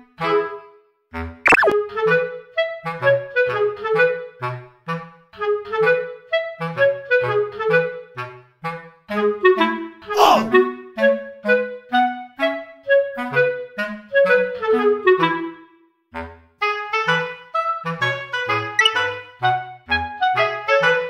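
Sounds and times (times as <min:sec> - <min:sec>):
bouncy woodwind melody: 0:05.6 - 0:08.3, 0:09.1 - 0:15.6, 0:16.7 - 0:21.0.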